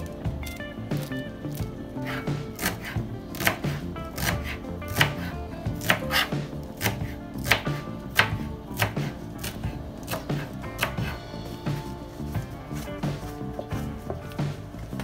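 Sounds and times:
soft background music: 0.0 - 15.0
knife chopping on cutting board: 2.1 - 11.1.

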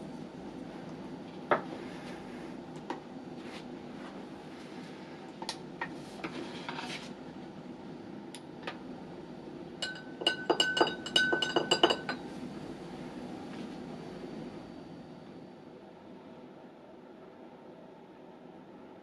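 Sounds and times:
probe clinking against glass beaker: 9.8 - 12.2.

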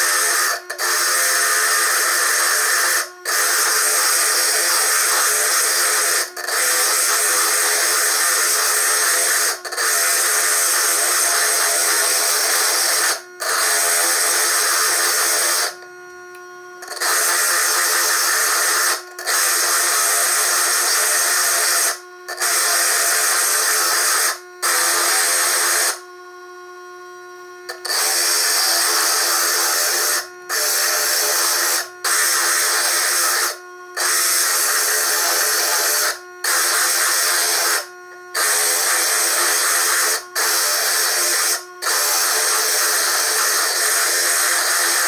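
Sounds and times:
stone grinding on drill: 0.0 - 15.9, 16.8 - 26.1, 27.7 - 45.0.

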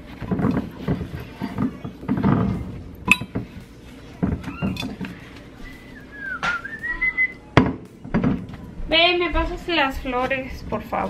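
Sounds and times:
glass clink: 3.1 - 3.4.

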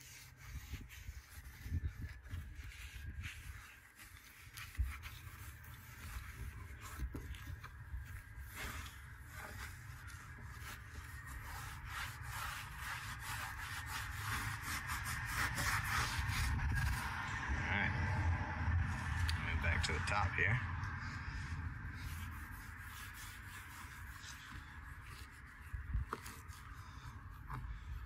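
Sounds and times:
cloth rubbing on boat hull: 0.0 - 17.2, 21.8 - 28.0
low rumble: 14.6 - 23.8.

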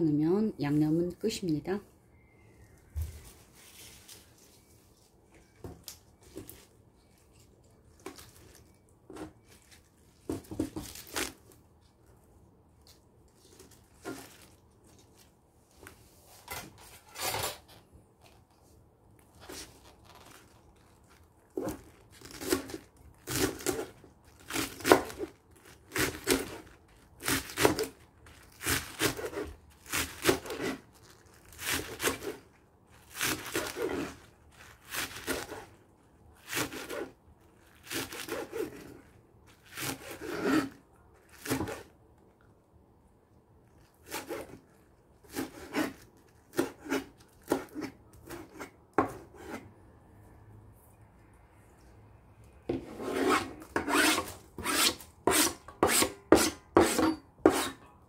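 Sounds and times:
knife slicing scallions on board: 52.8 - 57.8.

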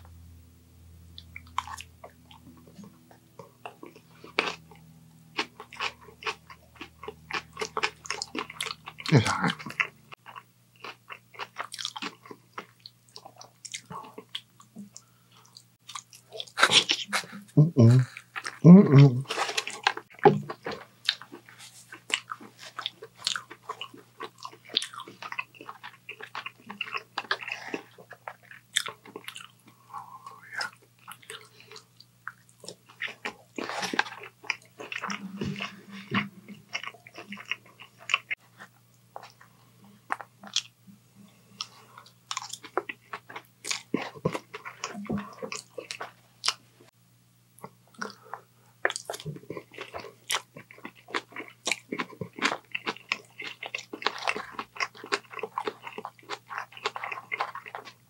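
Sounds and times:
faint low hum: 0.0 - 58.0
crunchy chewing close up: 1.2 - 17.4, 19.2 - 40.8, 41.6 - 46.6, 47.6 - 58.0.

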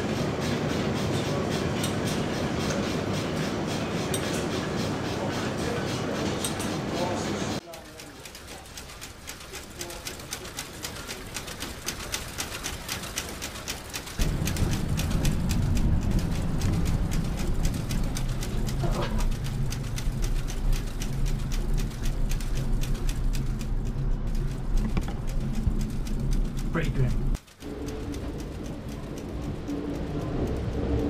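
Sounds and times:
mill machinery clattering: 0.0 - 31.0
loud low machinery rumble: 14.1 - 31.0.

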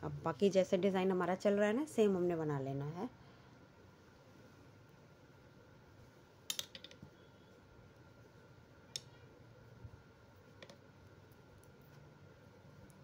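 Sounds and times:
metal knitting needles clicking: 6.5 - 7.0.

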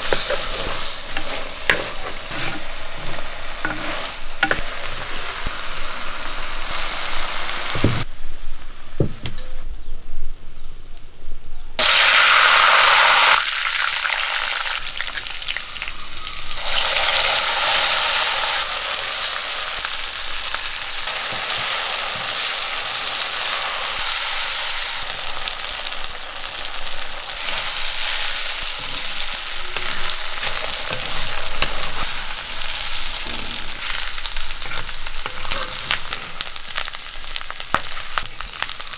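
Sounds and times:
spatula stirring and scraping: 0.0 - 5.3, 27.4 - 36.6
meat sizzling in hot oil: 0.0 - 8.1, 11.8 - 38.9.

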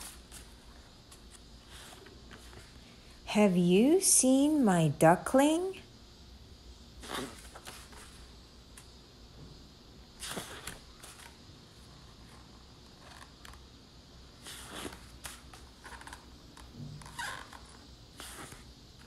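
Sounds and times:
rustles and scrapes: 0.0 - 2.9
faint hiss and hum: 0.0 - 19.0.

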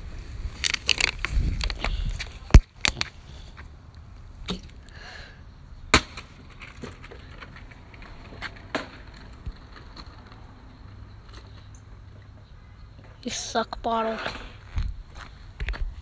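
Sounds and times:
plastic bottle hitting concrete: 5.9 - 7.1.

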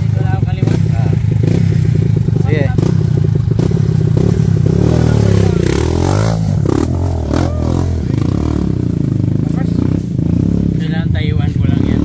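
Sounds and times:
dirt bike engine idling and revving: 0.0 - 12.0.

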